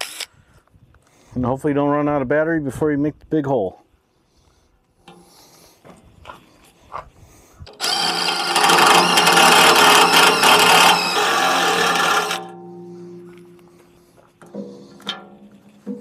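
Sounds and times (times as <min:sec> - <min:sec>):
drill boring through steel: 0:07.7 - 0:12.5.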